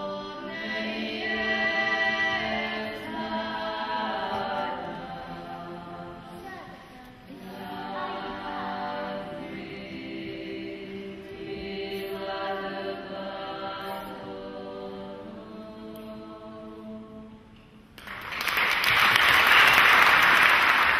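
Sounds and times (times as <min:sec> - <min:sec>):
women's choir singing a cappella: 0:00.0 - 0:17.6
audience applause: 0:18.0 - 0:20.9.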